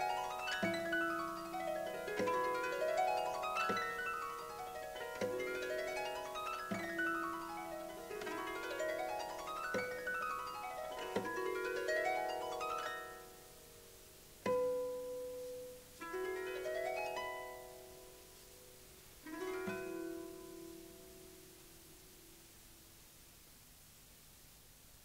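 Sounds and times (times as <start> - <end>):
solo harp playing: 0.0 - 22.4.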